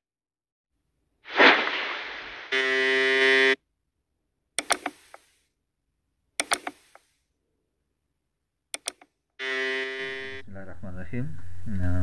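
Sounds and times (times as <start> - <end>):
harsh buzzing tone: 1.4 - 3.6, 8.8 - 11.0
sharp mouse clicks: 4.6 - 5.4, 6.4 - 7.1, 8.7 - 9.2.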